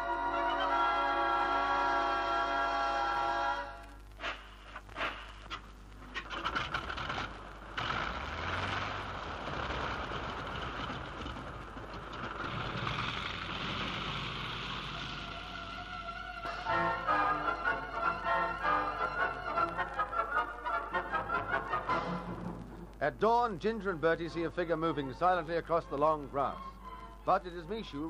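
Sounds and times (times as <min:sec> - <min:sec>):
radio drama music: 0:00.0 - 0:12.9, 0:13.6 - 0:28.0
low rumble: 0:06.4 - 0:16.5.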